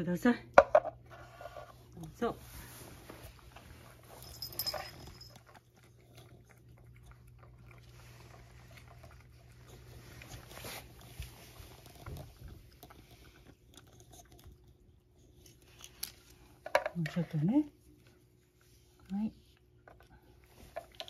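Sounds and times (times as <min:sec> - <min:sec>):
cat lapping: 0:05.4 - 0:15.1.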